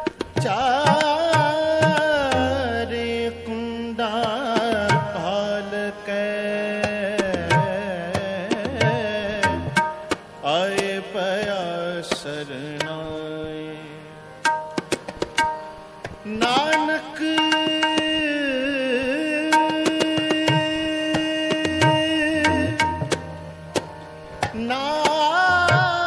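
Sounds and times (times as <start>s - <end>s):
tabla strokes: 0.0s - 2.8s, 4.0s - 5.4s, 6.8s - 12.9s, 14.4s - 18.3s, 19.4s - 26.0s
wordless devotional singing: 0.4s - 9.7s, 10.4s - 14.3s, 16.2s - 22.8s.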